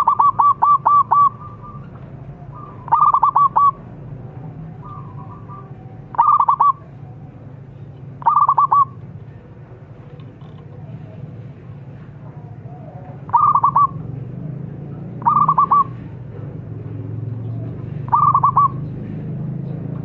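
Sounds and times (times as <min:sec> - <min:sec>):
dove cooing: 0:00.0 - 0:07.4, 0:08.2 - 0:09.0, 0:12.4 - 0:14.1, 0:15.2 - 0:16.0, 0:17.4 - 0:18.9
steady low hum: 0:00.0 - 0:20.0.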